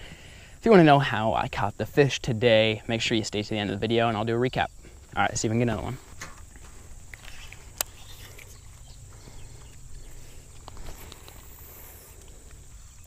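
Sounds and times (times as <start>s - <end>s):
insects trilling: 0.0s - 13.0s
low wind rumble: 1.7s - 13.0s
faint ticks: 6.2s - 13.0s.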